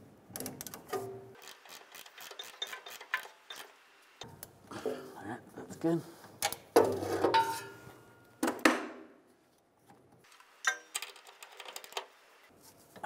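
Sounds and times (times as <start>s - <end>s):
metal tools clinking: 2.1s - 3.7s.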